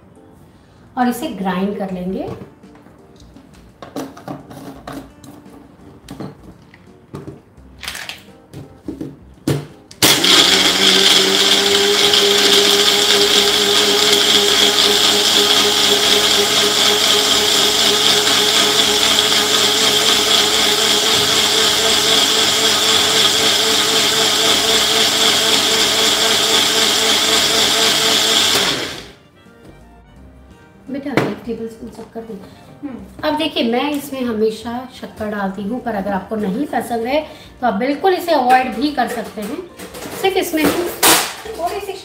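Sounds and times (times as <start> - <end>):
blender motor grinding: 10.0 - 29.2.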